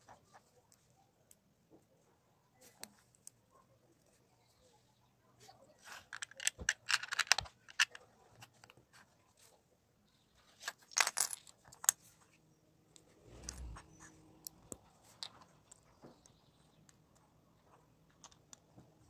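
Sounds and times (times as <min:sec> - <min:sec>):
plastic pieces clicking: 0:06.1 - 0:08.0.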